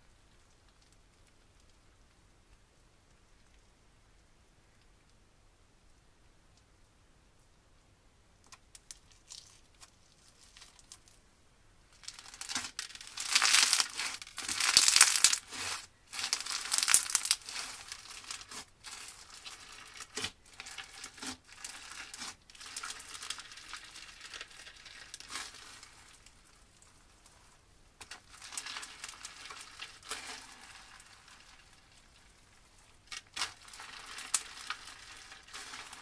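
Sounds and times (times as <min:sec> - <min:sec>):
slime crackling and crunching: 0:08.8 - 0:11.2, 0:11.9 - 0:36.0.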